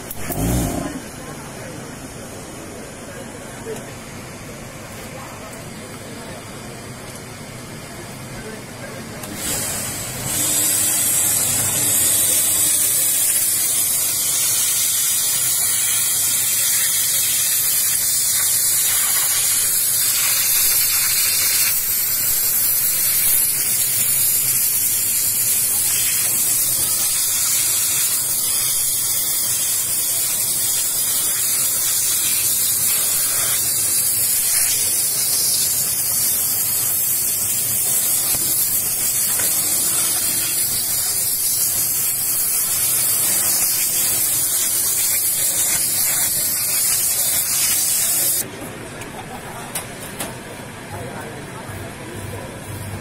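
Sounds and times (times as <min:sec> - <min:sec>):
steam nozzle hissing: 0:00.0 - 0:01.2, 0:09.3 - 0:48.4.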